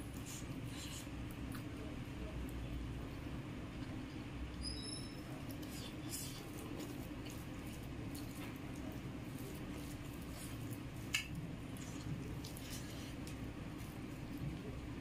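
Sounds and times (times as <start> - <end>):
mouth chewing: 0.0 - 2.0, 3.7 - 14.8
low background hum: 0.0 - 15.0
fingers squishing rice: 4.6 - 15.0.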